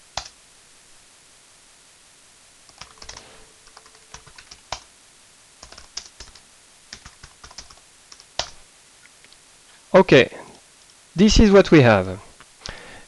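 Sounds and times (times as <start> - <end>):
typing on computer keyboard: 2.7 - 4.9, 5.6 - 8.6.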